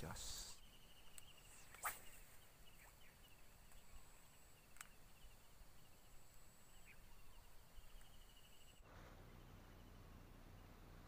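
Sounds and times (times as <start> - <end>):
insect chirping: 0.0 - 9.8
small click: 4.7 - 5.0.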